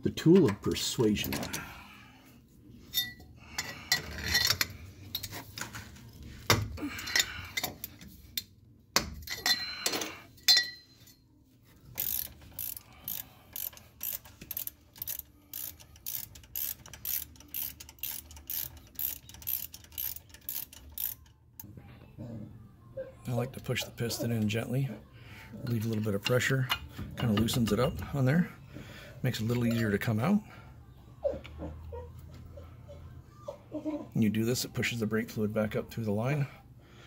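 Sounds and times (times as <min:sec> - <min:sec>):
metal clinks and knocks: 0:02.9 - 0:05.3, 0:09.0 - 0:11.2
ratchet wrench clicking: 0:11.9 - 0:21.4.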